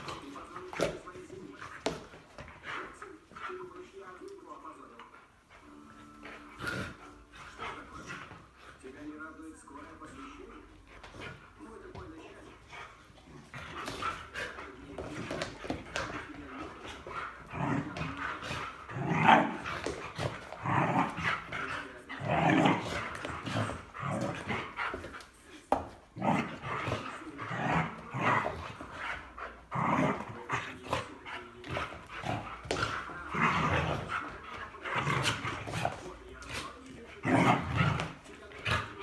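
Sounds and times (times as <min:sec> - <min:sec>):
dog growling and barking: 0:16.8 - 0:24.8, 0:26.2 - 0:31.1, 0:31.8 - 0:35.9, 0:37.2 - 0:39.0.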